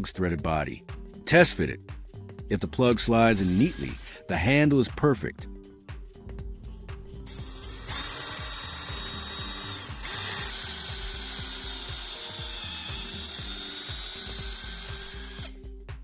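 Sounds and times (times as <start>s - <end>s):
power drill whirring: 3.3s - 4.2s, 7.3s - 15.6s.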